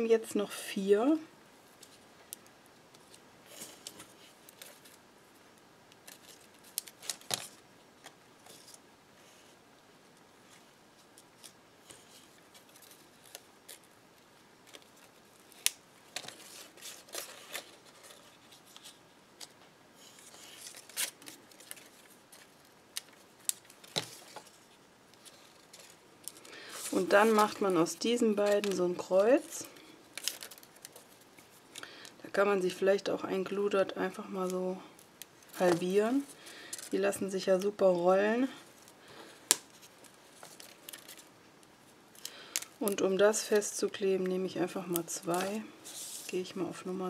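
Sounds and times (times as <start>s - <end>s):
paper rustling: 10.5s - 31.8s, 38.8s - 41.3s, 44.9s - 46.4s.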